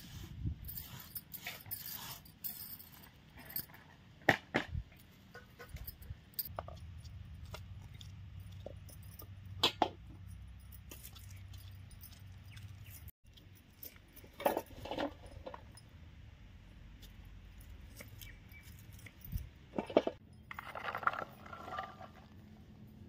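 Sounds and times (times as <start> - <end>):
light clicks and metallic clinks: 4.9 - 16.0, 17.0 - 20.5.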